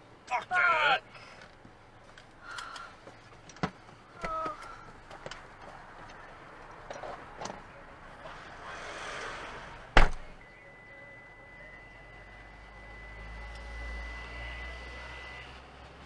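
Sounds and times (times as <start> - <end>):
traffic passing: 0.0 - 16.0
truck passing: 4.9 - 16.0
steady high-pitched tone: 10.4 - 15.6.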